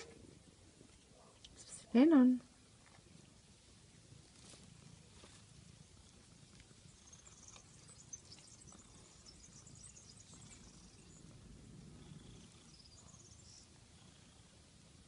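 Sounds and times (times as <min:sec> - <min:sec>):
faint high-pitched chirping: 0:06.0 - 0:11.4, 0:12.0 - 0:14.4.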